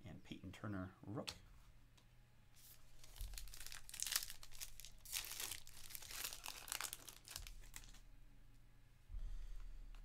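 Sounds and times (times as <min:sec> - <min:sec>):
foil wrapper crinkling and tearing: 0:03.0 - 0:08.0.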